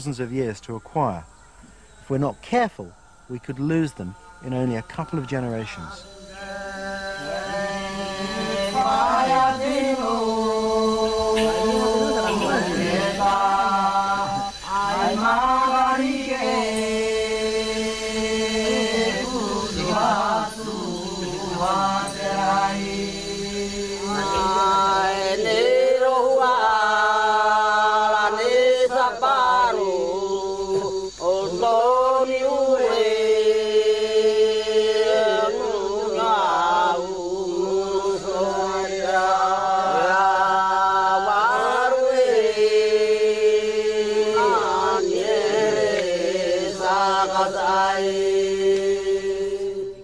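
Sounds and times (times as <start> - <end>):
chanted vocal line: 2.1 - 50.0
low drone: 5.8 - 25.4.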